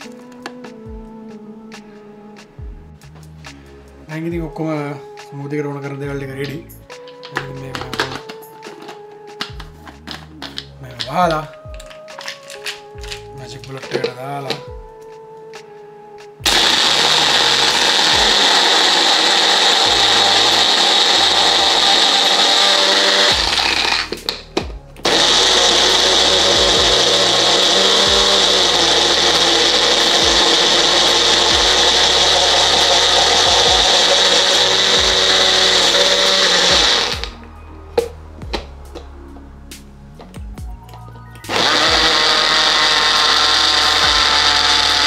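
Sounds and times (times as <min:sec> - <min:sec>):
blender running: 0:07.4 - 0:08.3, 0:16.4 - 0:24.4, 0:25.0 - 0:37.4, 0:41.5 - 0:45.0
blender clicks: 0:16.5 - 0:37.4, 0:41.4 - 0:45.0.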